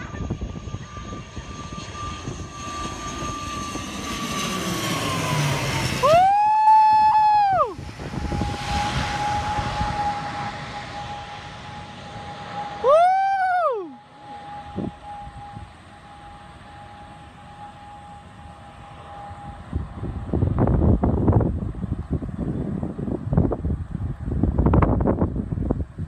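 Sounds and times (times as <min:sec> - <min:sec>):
propeller aircraft droning overhead: 0:00.0 - 0:26.0
loud swooping tone: 0:01.8 - 0:20.2.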